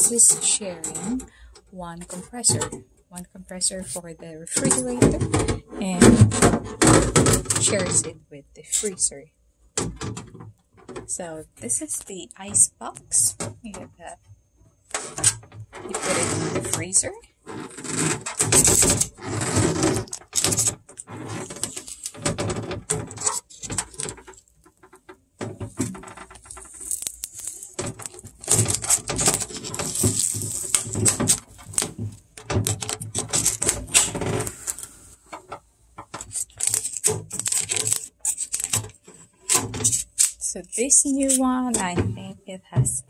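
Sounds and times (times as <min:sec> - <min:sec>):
packing tape and foam rustling: 0:14.9 - 0:35.4, 0:36.1 - 0:42.0
hard plastic clicks and clatters: 0:17.6 - 0:40.4.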